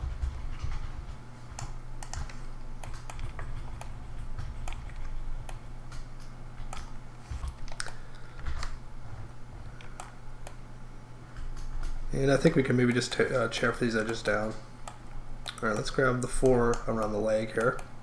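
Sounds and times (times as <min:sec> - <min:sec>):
low hum: 0:00.0 - 0:18.0
keyboard and mouse clicks: 0:01.5 - 0:08.8.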